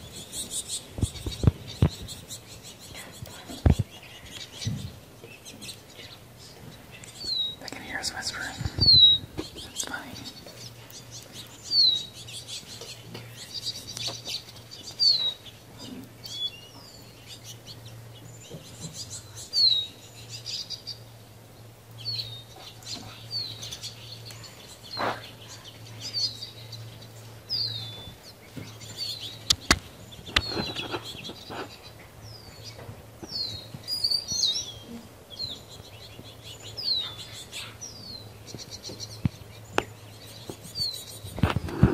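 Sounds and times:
small birds chirping: 0.0 - 41.9
sharp clicks: 29.4 - 30.6.

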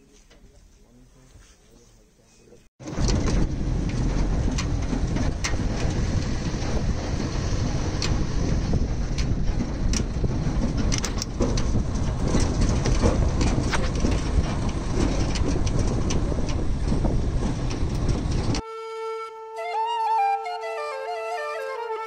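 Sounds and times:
rattles and knocks: 2.8 - 18.6
vehicle road noise rumbling: 2.8 - 18.6.

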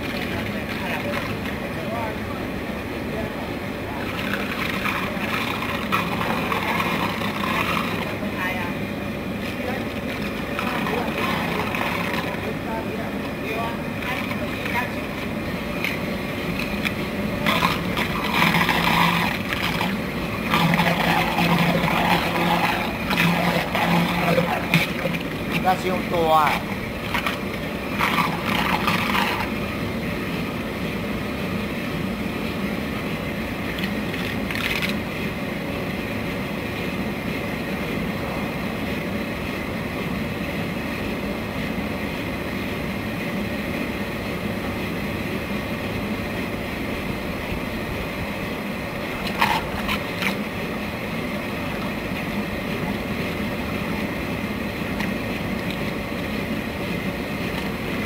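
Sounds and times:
water churning: 0.0 - 36.6, 46.1 - 58.0
electric motor humming: 9.6 - 29.6.

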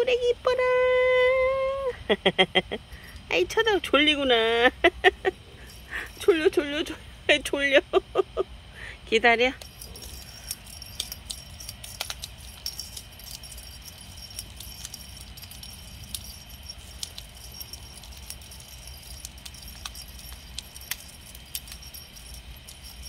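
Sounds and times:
cat toy jingling and clicking: 2.8 - 7.1, 9.4 - 23.0.

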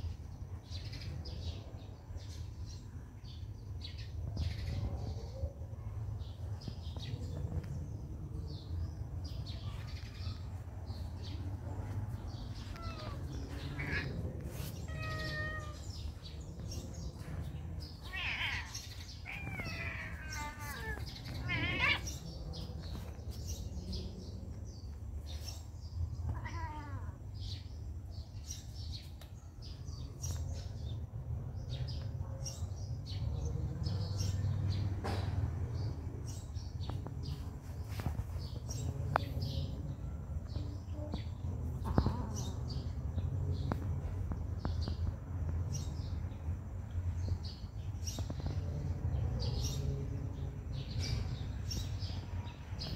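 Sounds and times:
steady low rumble: 3.5 - 26.3, 34.8 - 52.9
cats meowing: 9.7 - 22.5, 26.2 - 27.3, 40.8 - 43.0.

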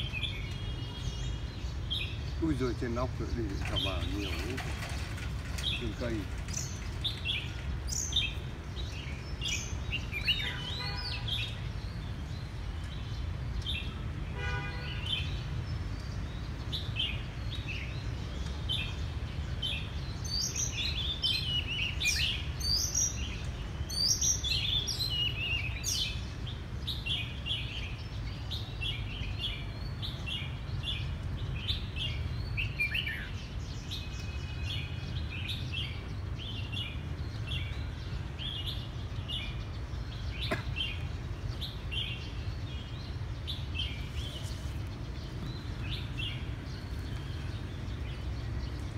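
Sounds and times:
bird whistled chirps and trills: 31.7 - 36.0.

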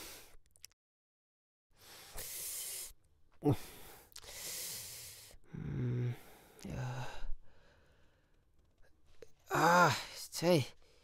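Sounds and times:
man sighing heavily: 3.4 - 4.0.

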